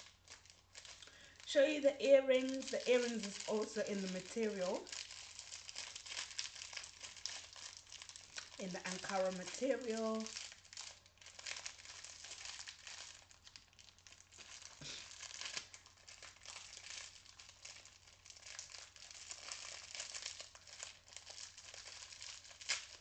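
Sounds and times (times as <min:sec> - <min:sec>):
plastic packet crinkling: 0:00.0 - 0:23.0.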